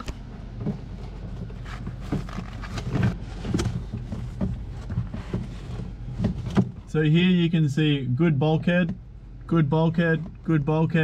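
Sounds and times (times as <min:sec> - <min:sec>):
cables rustling and knocking: 0:00.0 - 0:06.9
steady low hum: 0:00.0 - 0:11.0.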